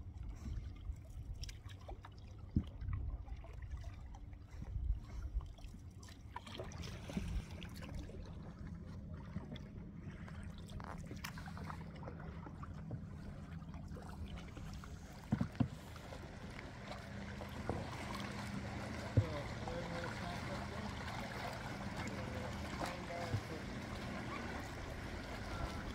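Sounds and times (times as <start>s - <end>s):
low rumble: 6.8s - 25.9s
canoe paddle strokes: 9.3s - 25.9s.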